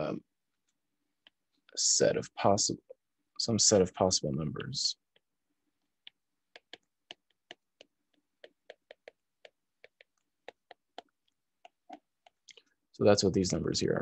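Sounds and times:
stylus tapping on glass screen: 6.0 - 12.4.

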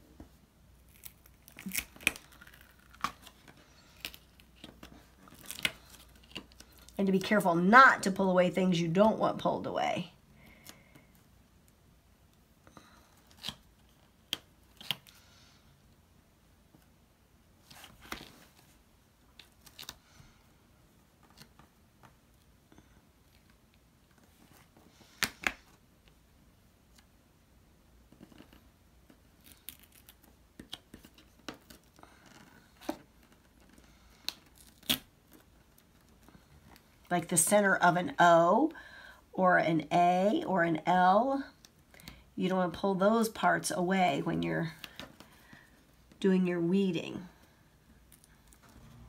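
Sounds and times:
vinyl peeling crackle: 0.8 - 7.3, 17.6 - 20.2, 28.1 - 37.1.

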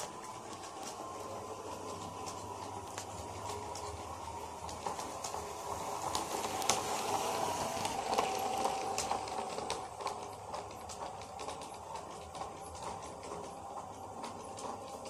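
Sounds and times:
model train motor hum: 0.0 - 15.0
wheels clicking on rails: 0.0 - 15.0.

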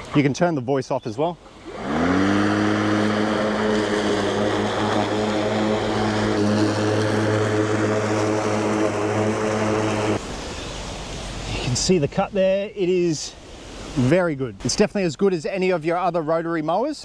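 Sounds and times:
electric mower humming: 1.6 - 10.2
grass being cut: 1.6 - 10.2.

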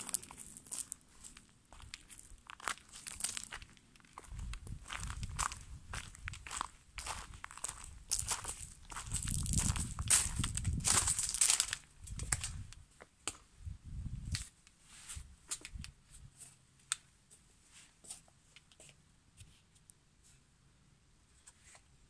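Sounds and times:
footsteps with low thuds: 0.0 - 12.7.

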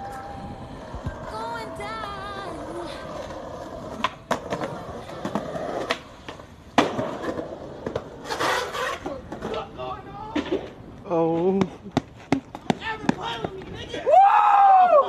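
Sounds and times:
skateboard wheels rolling on pavement: 0.0 - 15.0
skateboard clacking on ground: 3.1 - 14.0.

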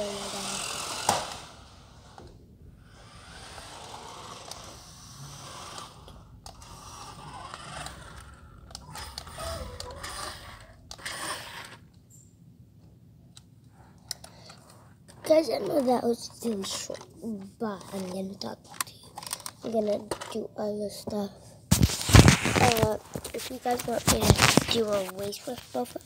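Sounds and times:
toy car motor whirring: 0.0 - 11.9, 15.2 - 17.2, 17.8 - 20.4.

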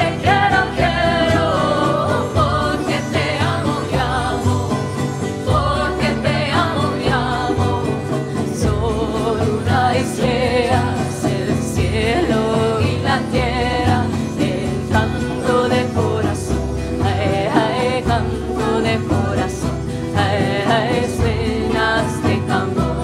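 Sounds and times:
acoustic guitar: 0.0 - 23.0
djembe drumming: 0.0 - 23.0
woman and man singing: 0.0 - 23.0.

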